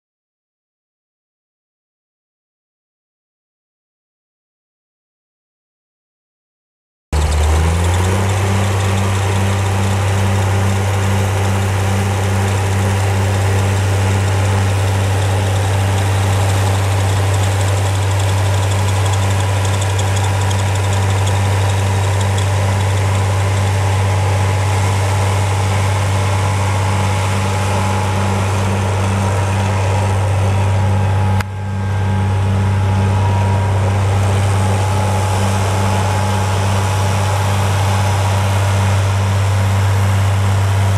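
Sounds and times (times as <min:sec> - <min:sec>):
tractor diesel engine running: 0:07.2 - 0:40.9.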